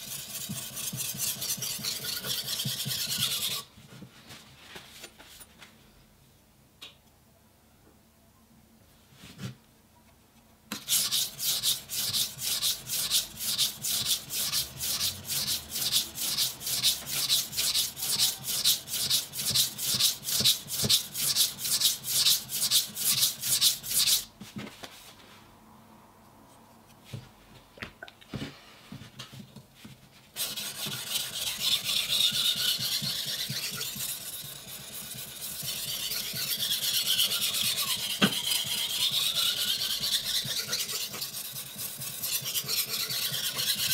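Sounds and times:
grinding rub on stone: 0.0 - 3.7, 10.8 - 24.3, 30.4 - 43.9
knife scraping on a whetstone: 0.0 - 3.7, 10.8 - 24.3, 30.4 - 43.9.

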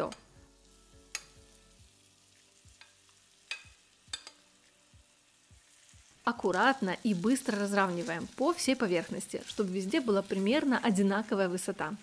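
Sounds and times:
faint sizzling: 0.0 - 12.0.

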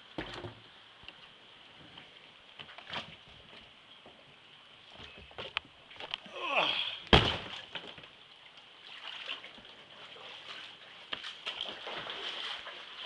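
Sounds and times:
floodwater sloshing and splashing: 7.0 - 13.0.

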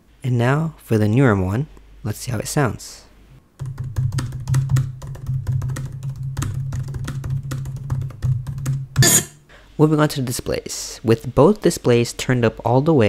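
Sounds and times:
fast laptop keyboard typing: 3.6 - 9.0.

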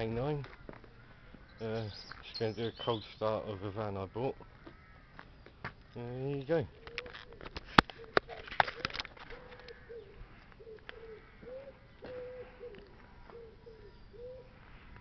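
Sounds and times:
pigeon cooing: 6.8 - 14.9.

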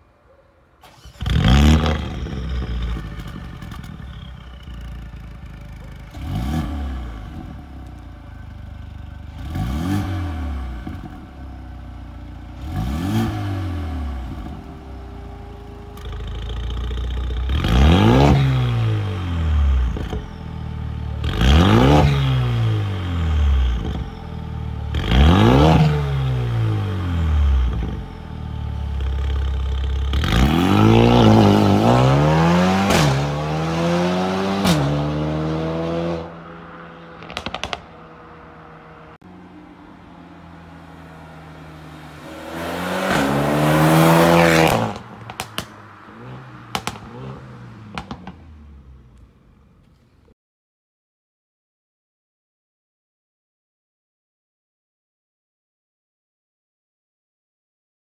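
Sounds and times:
car engine revving: 0.8 - 49.7
car accelerating hard: 30.1 - 39.2, 40.9 - 48.8.

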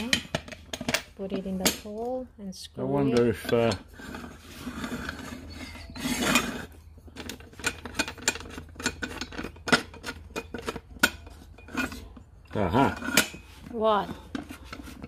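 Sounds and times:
metal scrape: 3.2 - 15.0.

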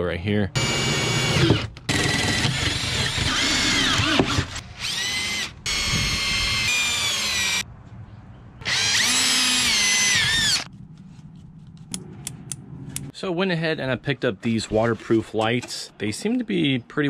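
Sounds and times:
cordless drill driving screws: 0.6 - 7.6, 8.6 - 10.7.

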